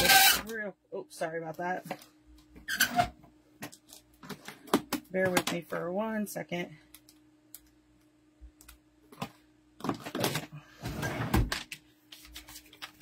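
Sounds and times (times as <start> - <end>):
faint steady hum: 0.0 - 13.0
paper rustling: 11.8 - 13.0.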